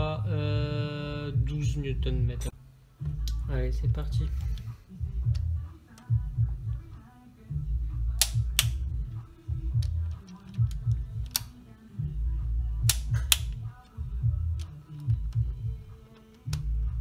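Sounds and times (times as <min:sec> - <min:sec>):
music with heavy low beat: 0:00.0 - 0:11.4, 0:12.0 - 0:17.0
torque wrench clicking: 0:08.2 - 0:08.9, 0:09.7 - 0:11.6.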